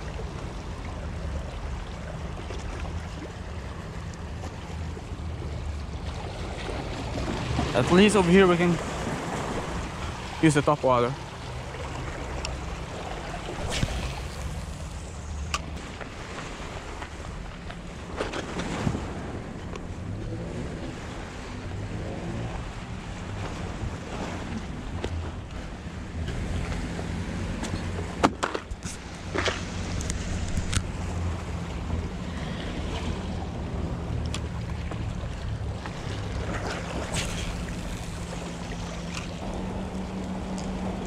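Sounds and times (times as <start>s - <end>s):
sea washing against rocks: 6.4s - 20.2s, 35.8s - 41.0s
wind rumbling on microphone: 11.5s - 41.0s.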